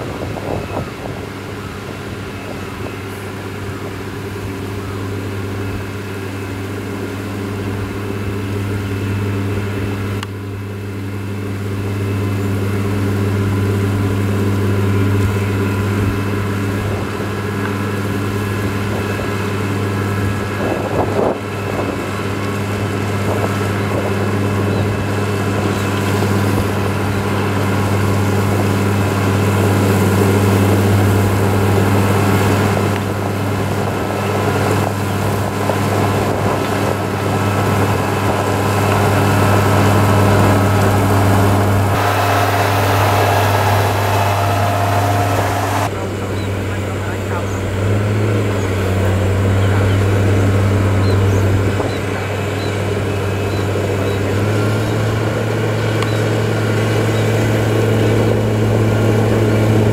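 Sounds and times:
grader diesel engine running: 0:00.0 - 0:59.9
blade pushing soil and gravel: 0:35.9 - 0:45.9.

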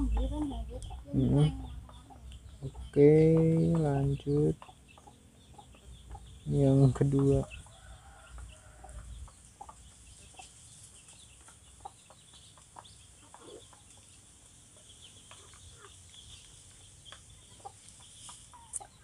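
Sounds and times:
chickens clucking: 0:00.0 - 0:19.0.

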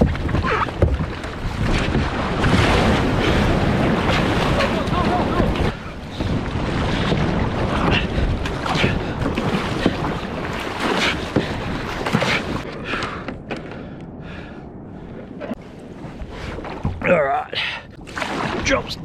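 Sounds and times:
paddle strokes splashing: 0:00.0 - 0:13.5, 0:18.0 - 0:19.0
wind buffeting microphone: 0:00.0 - 0:17.0.

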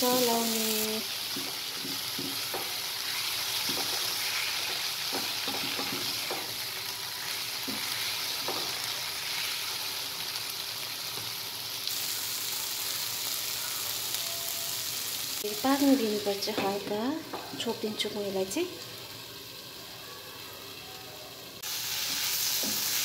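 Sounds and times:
food sizzling in a frying pan: 0:00.0 - 0:23.0
spatula scraping and tapping pan: 0:03.6 - 0:06.5.

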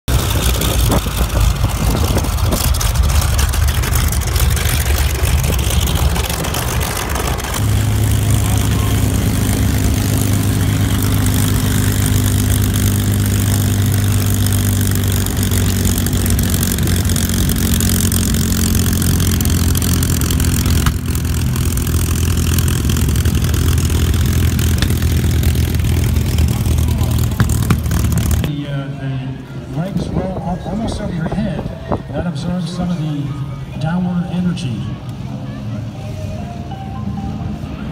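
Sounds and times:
aircraft engine idling: 0:00.1 - 0:28.5
radial engine idling: 0:00.1 - 0:28.5.

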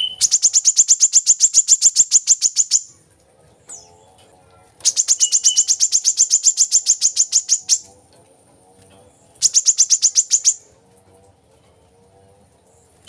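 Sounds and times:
bird singing fast trill: 0:00.0 - 0:02.9, 0:04.8 - 0:07.9, 0:09.3 - 0:10.7.

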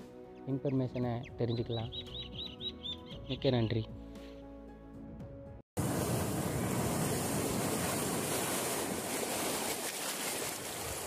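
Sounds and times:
foaming water washing: 0:05.8 - 0:11.0
surf breaking over rocks: 0:05.8 - 0:11.0.

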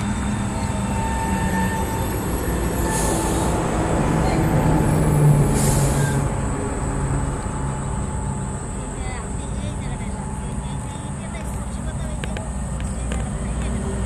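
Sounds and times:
engine rumbling: 0:00.0 - 0:14.0.

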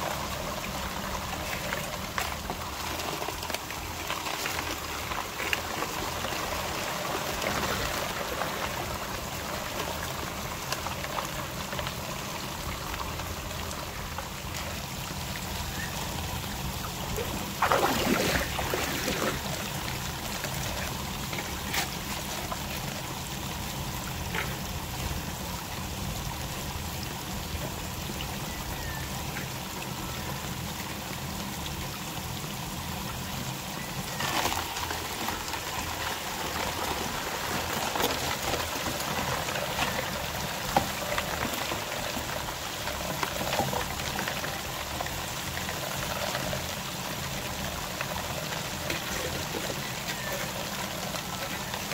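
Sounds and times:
rush of pouring water: 0:00.0 - 0:51.9
water running and trickling: 0:00.0 - 0:51.9.

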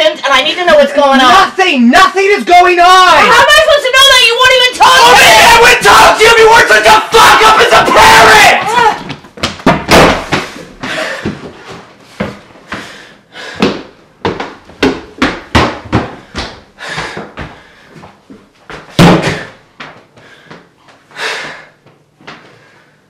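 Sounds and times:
footsteps on wooden stairs: 0:07.9 - 0:22.5
loud slam: 0:09.8 - 0:10.5, 0:19.0 - 0:19.5.

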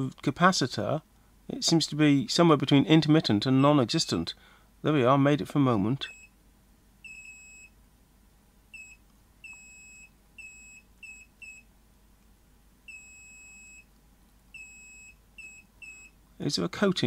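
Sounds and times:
multimeter high-pitched beeps: 0:07.0 - 0:07.8, 0:08.7 - 0:11.7, 0:12.9 - 0:13.9, 0:14.5 - 0:16.2.

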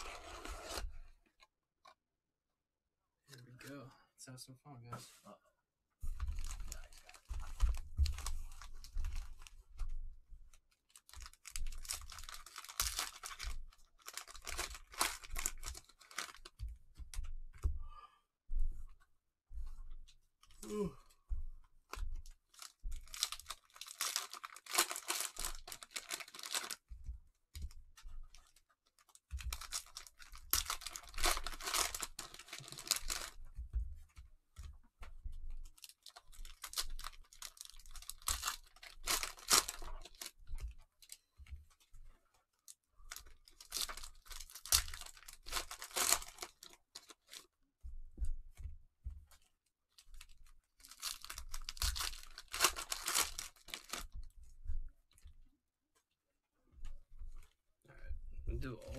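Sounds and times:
cellophane wrappers tearing and crinkling: 0:00.0 - 0:00.8, 0:10.7 - 0:16.5, 0:22.5 - 0:26.8, 0:28.4 - 0:33.4, 0:35.7 - 0:40.4, 0:43.1 - 0:47.5, 0:50.0 - 0:54.2.

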